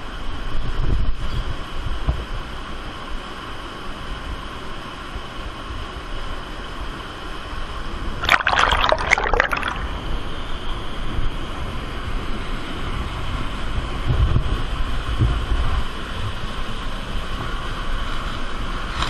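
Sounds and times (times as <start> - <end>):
close splashing: 8.2 - 10.0
underground river rushing: 8.2 - 10.2.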